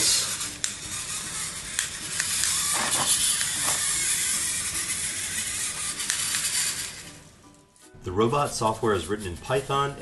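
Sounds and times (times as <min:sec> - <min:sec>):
robot motors whirring: 0:00.0 - 0:07.1.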